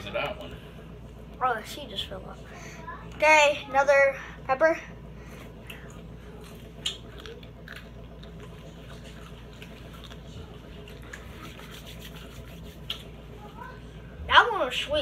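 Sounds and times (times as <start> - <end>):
person chewing crunchy pepper: 5.6 - 13.2.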